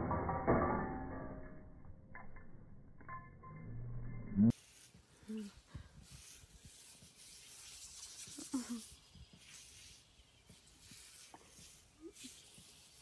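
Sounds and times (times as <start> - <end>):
short low sound: 2.5 - 4.5
sprinkler water spray hiss: 4.5 - 13.0.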